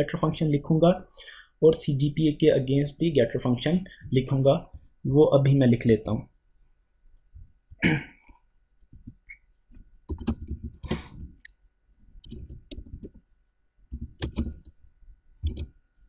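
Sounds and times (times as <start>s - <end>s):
computer keyboard typing: 10.1s - 11.0s, 12.2s - 13.2s, 13.9s - 14.8s, 15.4s - 15.7s.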